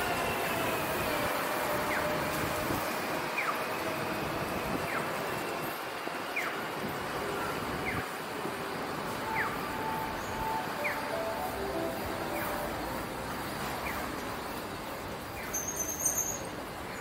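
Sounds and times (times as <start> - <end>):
street traffic noise: 0.0 - 17.0
crossing signal electronic chirp: 9.1 - 13.2.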